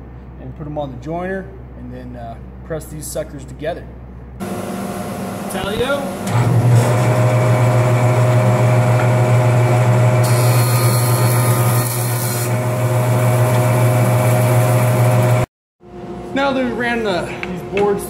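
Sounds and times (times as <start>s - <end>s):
jointer motor hum: 4.4s - 15.5s.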